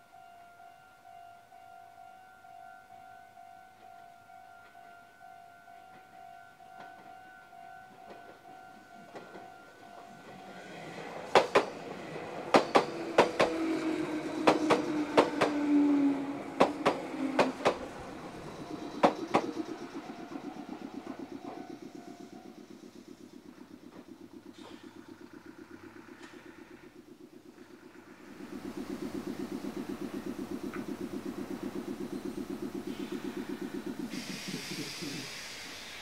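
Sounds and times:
level crossing alarm: 0:00.0 - 0:34.2
low whine from train: 0:00.0 - 0:36.0
train wheels clacking over joints: 0:07.8 - 0:36.0.

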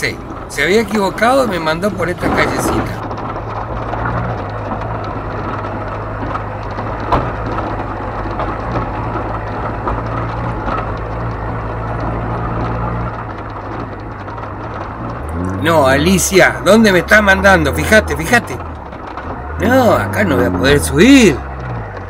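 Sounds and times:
knocks and rattles over gravel: 0:00.0 - 0:22.0
pickup engine running: 0:00.0 - 0:22.0.

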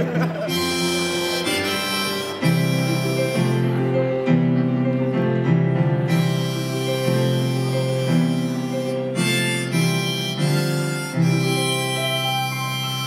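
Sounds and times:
electric keyboard chords: 0:00.0 - 0:13.0
harmonica: 0:00.0 - 0:13.0.

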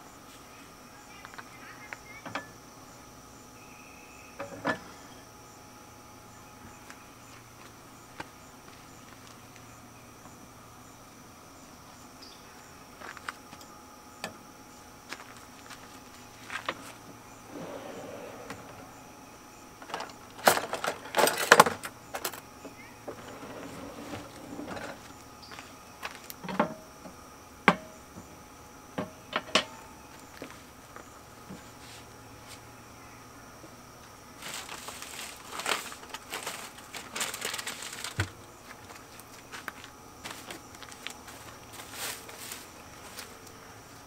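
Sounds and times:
handling rustling and clatter: 0:19.8 - 0:22.4, 0:34.4 - 0:43.4.

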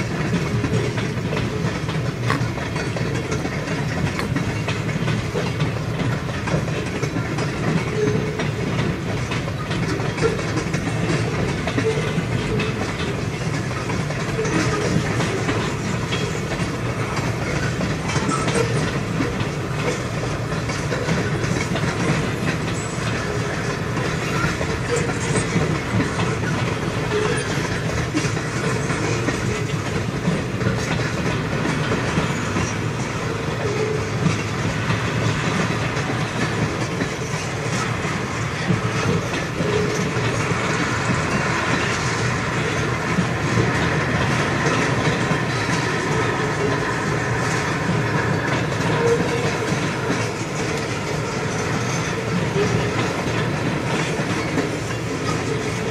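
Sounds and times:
train wheels rumbling on rail: 0:00.0 - 0:55.9
wheels clacking over rail joints: 0:00.0 - 0:55.9.

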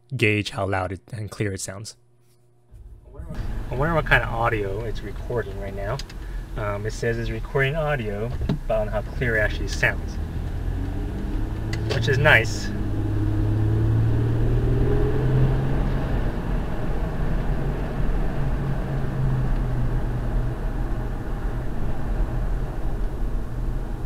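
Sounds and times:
low engine hum: 0:02.7 - 0:24.0
road and tyre noise: 0:02.8 - 0:24.0.

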